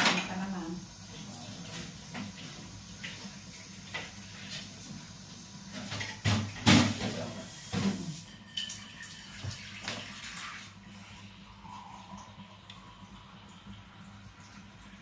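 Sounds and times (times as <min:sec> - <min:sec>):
tap water running: 0:00.0 - 0:15.0
dishes clattering: 0:05.7 - 0:10.1.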